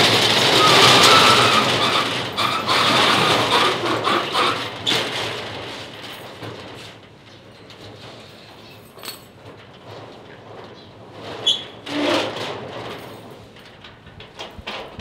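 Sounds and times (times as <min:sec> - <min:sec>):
metal roller shutter rattling: 0:00.0 - 0:15.0.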